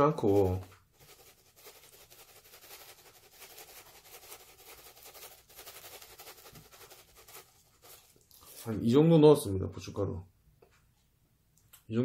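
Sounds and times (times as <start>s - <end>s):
chili flakes shaken from container: 0.0s - 8.8s.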